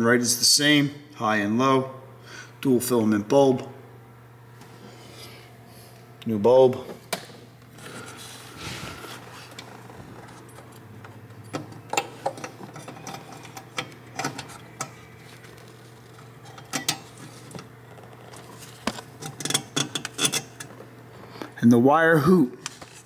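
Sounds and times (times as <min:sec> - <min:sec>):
steady low hum: 0:00.0 - 0:23.0
clicks and rattles of hands working: 0:09.5 - 0:20.8.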